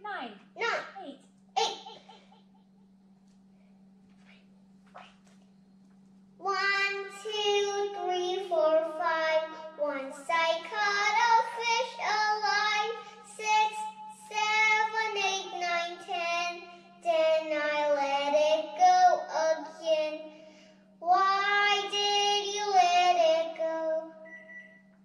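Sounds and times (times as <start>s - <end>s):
steady low hum: 0.0s - 25.0s
girl singing karaoke: 6.4s - 20.2s, 21.0s - 24.2s.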